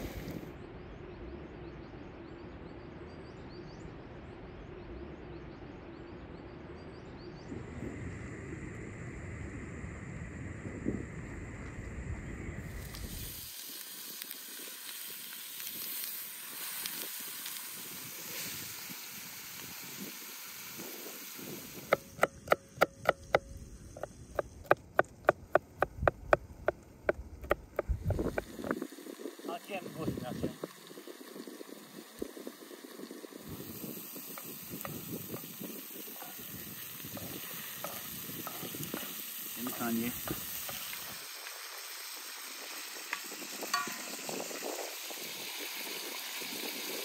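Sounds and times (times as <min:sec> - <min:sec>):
knife chopping on wooden board: 0:21.9 - 0:23.5.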